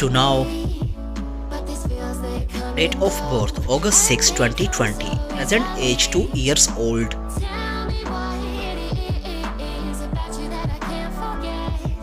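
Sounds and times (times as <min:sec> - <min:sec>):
electronic music with beat: 0:00.0 - 0:12.0.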